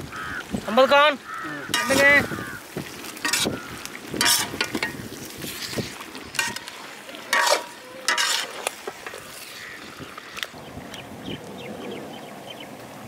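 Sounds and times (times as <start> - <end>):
gravy sizzling: 0.2 - 10.4
metal ladle scraping iron pan: 1.7 - 2.4, 3.2 - 9.9.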